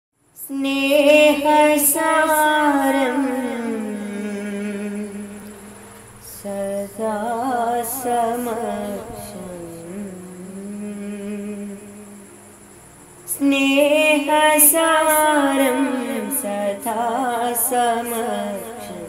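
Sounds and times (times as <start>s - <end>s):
person singing devotional song: 0.4s - 19.0s.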